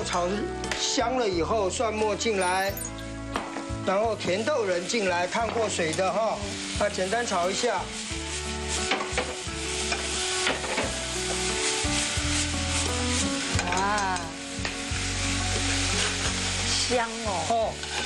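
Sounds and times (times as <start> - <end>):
peas sizzling in hot oil: 0.0 - 18.0
peas scraping and rattling in pan: 4.6 - 18.0.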